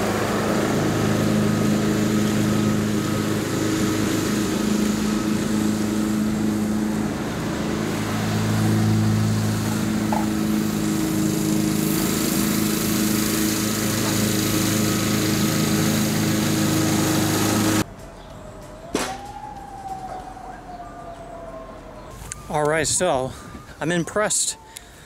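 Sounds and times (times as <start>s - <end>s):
lawn mower running: 0.0s - 17.9s.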